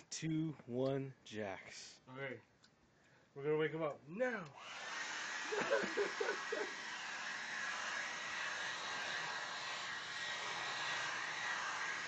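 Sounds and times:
hair dryer running: 0:04.6 - 0:12.0.

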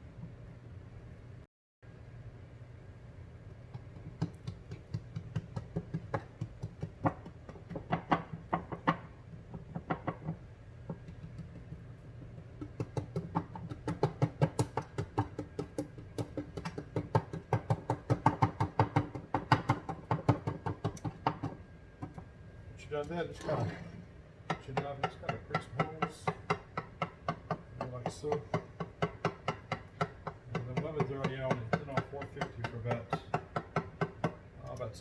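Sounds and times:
steady low hum: 0:00.0 - 0:35.0
fork tapping baking dish: 0:09.6 - 0:21.5, 0:24.5 - 0:34.9.

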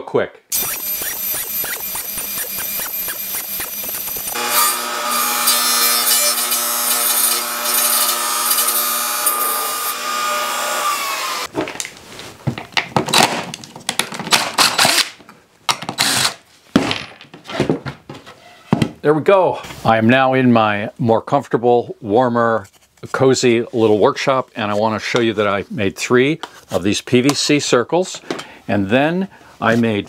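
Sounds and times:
table saw cutting plywood: 0:00.5 - 0:11.5.

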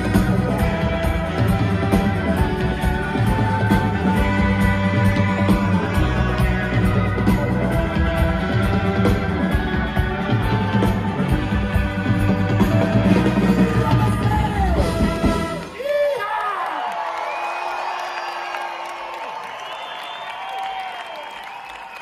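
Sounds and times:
rock band playing live: 0:00.0 - 0:15.8
trumpet and saxophone: 0:00.0 - 0:15.8.

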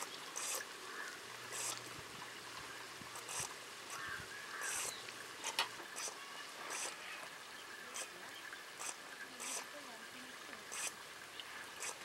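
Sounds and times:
oil crackling spits: 0:00.0 - 0:00.7, 0:01.4 - 0:01.9, 0:03.1 - 0:07.0, 0:11.8 - 0:12.0.

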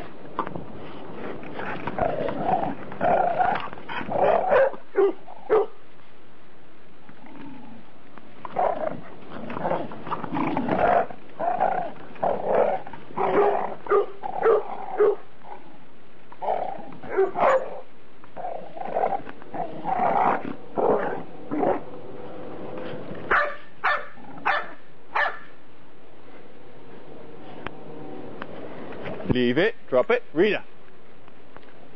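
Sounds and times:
dog barking and growling: 0:01.6 - 0:05.8, 0:08.5 - 0:15.6, 0:16.4 - 0:21.9, 0:23.3 - 0:25.6.

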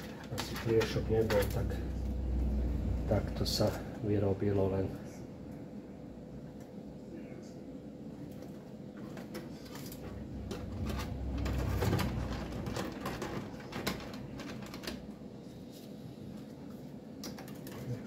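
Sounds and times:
clicks and knocks of computer parts: 0:00.0 - 0:01.7, 0:08.3 - 0:15.1.

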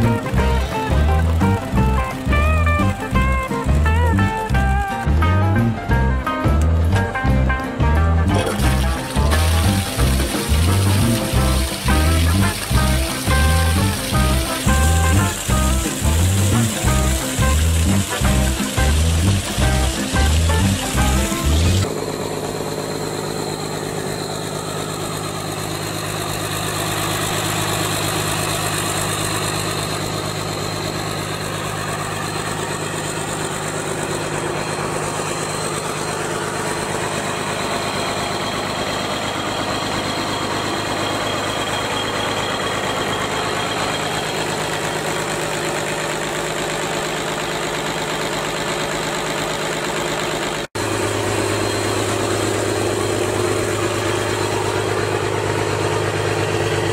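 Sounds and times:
diesel engine idling: 0:00.0 - 0:56.9.

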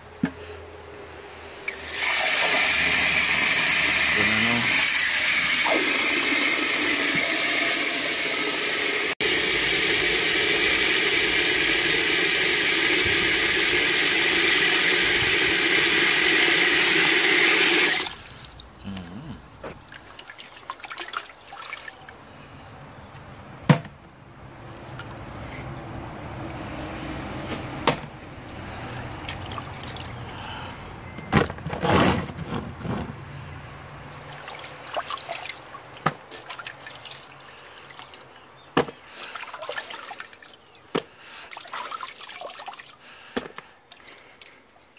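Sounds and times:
tap water pouring into pot: 0:05.0 - 0:18.2
water sloshing and splashing: 0:19.5 - 0:22.9, 0:24.6 - 0:26.0, 0:28.8 - 0:30.4, 0:34.0 - 0:44.9.

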